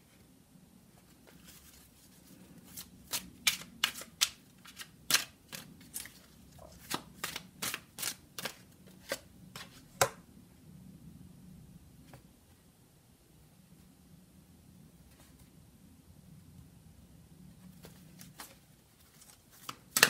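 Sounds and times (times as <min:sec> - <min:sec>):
cards shuffled by hand: 0:01.1 - 0:10.1, 0:17.7 - 0:20.0.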